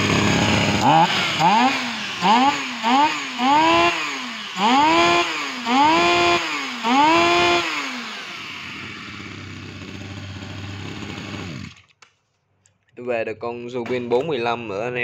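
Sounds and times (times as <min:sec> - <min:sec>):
brush-cutter engine revving and idling: 0:00.0 - 0:11.9.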